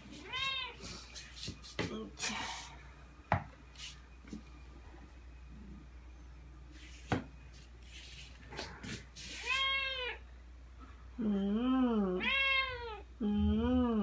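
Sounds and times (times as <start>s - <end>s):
cat meowing: 12.2s - 13.0s.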